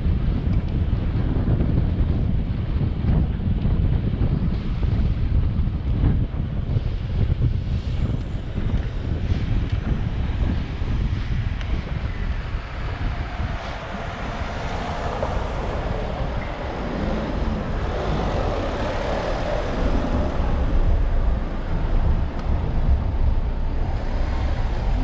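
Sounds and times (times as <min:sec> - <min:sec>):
low rumble: 0:00.0 - 0:25.0
cars idling in traffic queue: 0:12.7 - 0:25.0.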